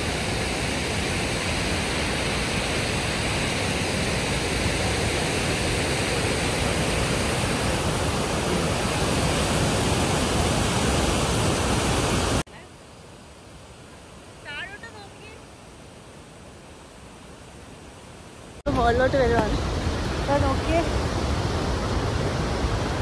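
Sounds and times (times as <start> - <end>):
waterfall roaring: 0.0 - 12.6, 18.6 - 23.0.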